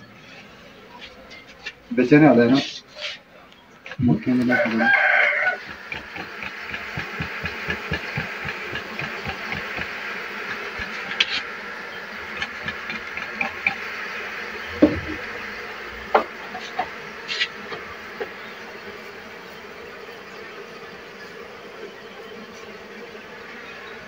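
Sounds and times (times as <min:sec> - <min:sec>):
bees buzzing: 0:04.0 - 0:24.0
knocks on hive box: 0:05.6 - 0:11.3, 0:14.7 - 0:15.3, 0:16.1 - 0:16.9.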